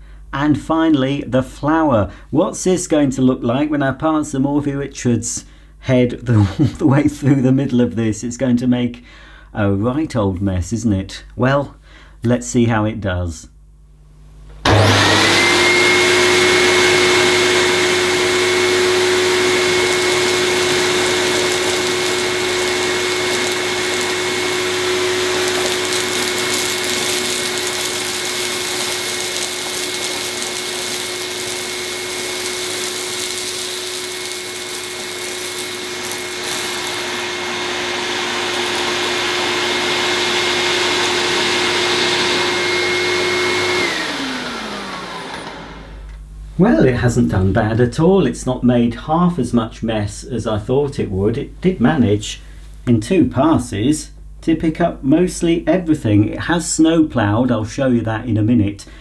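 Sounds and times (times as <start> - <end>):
vacuum cleaner whining: 14.6 - 46.2
suction picking up dirt: 18.2 - 39.5.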